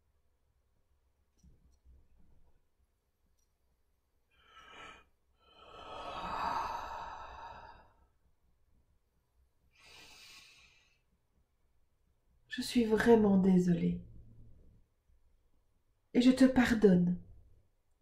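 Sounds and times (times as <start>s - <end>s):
woman breathing deeply: 4.3s - 8.2s, 9.7s - 11.1s.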